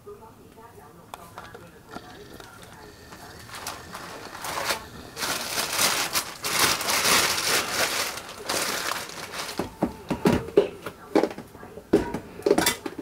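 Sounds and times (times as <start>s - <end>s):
plastic bag crinkling: 1.4s - 10.1s.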